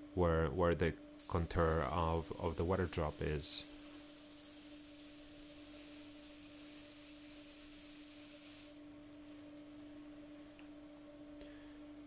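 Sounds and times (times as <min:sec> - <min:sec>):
steady low hum: 0:00.0 - 0:12.0
airbrush spraying paint: 0:01.2 - 0:08.8.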